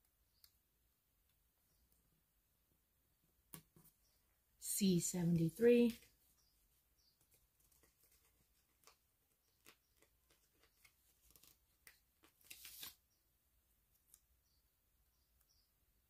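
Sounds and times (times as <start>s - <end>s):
paper rustling: 7.2s - 13.0s.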